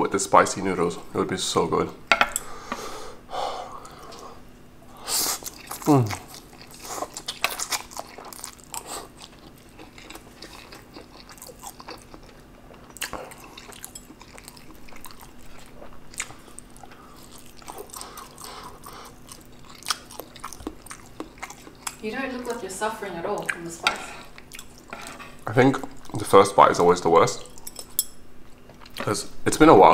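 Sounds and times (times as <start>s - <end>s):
person chewing noodles: 3.8s - 22.6s, 24.2s - 25.2s.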